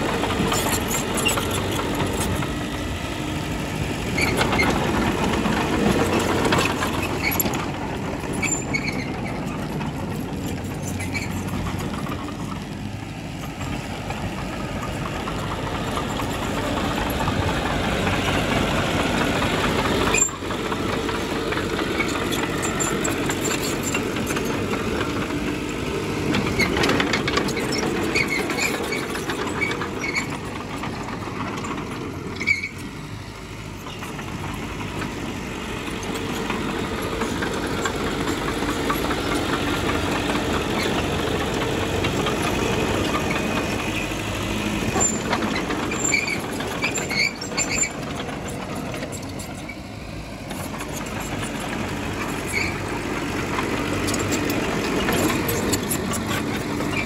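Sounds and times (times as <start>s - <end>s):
diesel machinery engine: 0.0s - 57.0s
short high squeaks: 8.4s - 9.4s, 20.1s - 20.4s, 26.4s - 30.4s, 32.4s - 32.9s, 44.9s - 48.0s, 52.2s - 52.9s.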